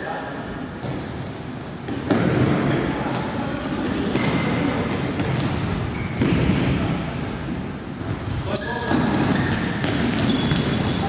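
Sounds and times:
sneaker squeaks: 0:00.8 - 0:01.2, 0:04.0 - 0:07.2, 0:08.0 - 0:11.0.

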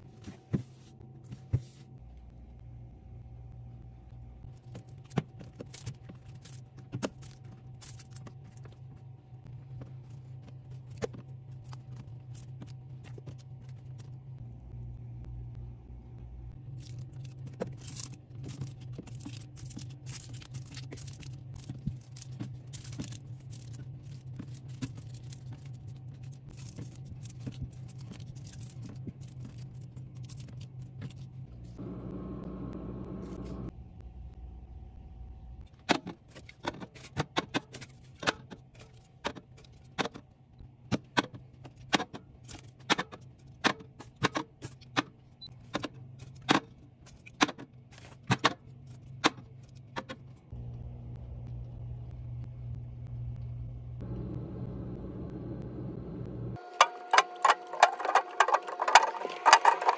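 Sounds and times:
low hum: 0:01.0 - 0:35.7, 0:50.4 - 0:59.9.

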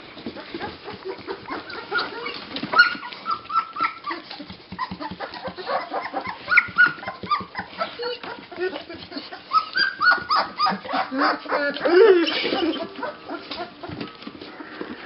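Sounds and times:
small clicks and shuffling: 0:00.0 - 0:11.0
puppies squeaking and whimpering: 0:00.2 - 0:15.0.

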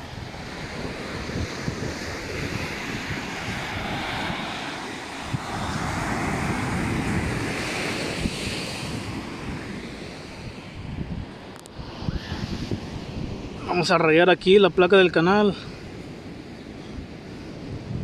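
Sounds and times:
ocean surf washing onto beach: 0:00.0 - 0:18.0
wind buffeting microphone: 0:00.0 - 0:18.0.

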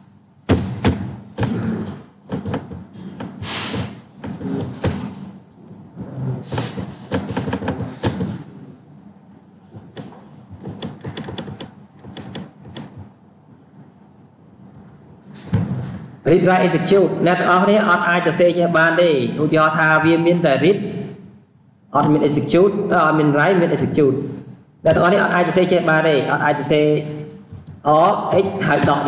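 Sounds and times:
irregular knocks and clicks: 0:00.5 - 0:01.6, 0:02.2 - 0:05.3, 0:06.5 - 0:08.4, 0:09.7 - 0:13.1.

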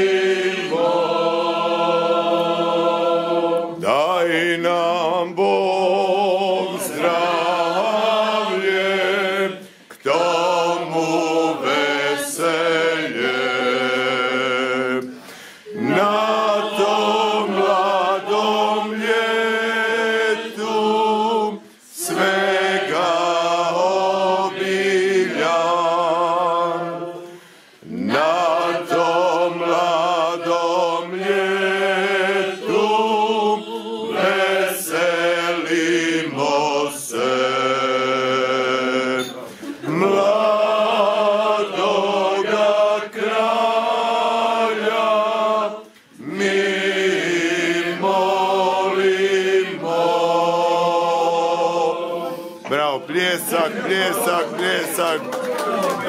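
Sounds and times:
choir singing a cappella: 0:00.0 - 0:55.2.

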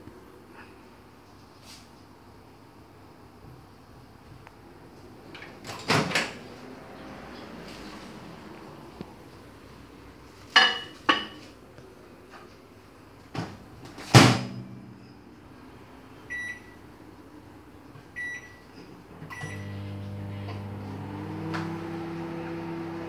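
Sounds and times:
microwave humming: 0:18.1 - 0:23.0.

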